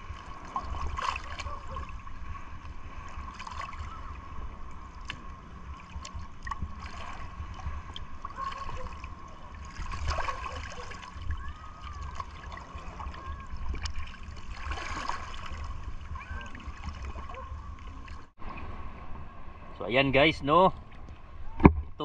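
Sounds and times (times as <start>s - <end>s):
people wading and splashing: 0.0s - 19.6s
sea water lapping: 0.0s - 21.6s.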